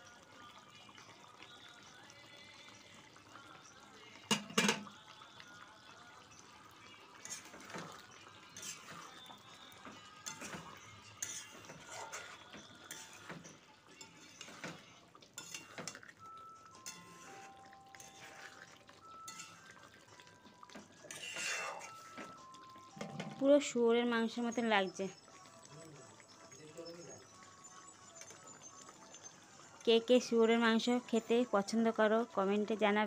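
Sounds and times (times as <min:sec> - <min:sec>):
spatula scraping metal pan: 0:07.2 - 0:09.3, 0:10.2 - 0:14.8, 0:15.4 - 0:16.2, 0:16.8 - 0:19.9, 0:21.1 - 0:22.4.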